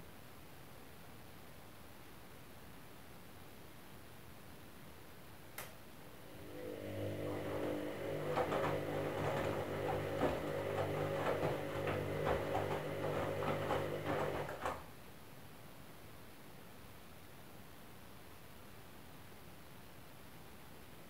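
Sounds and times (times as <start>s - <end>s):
washing machine motor hum: 6.0s - 14.8s
laundry knocking in drum: 7.4s - 14.8s.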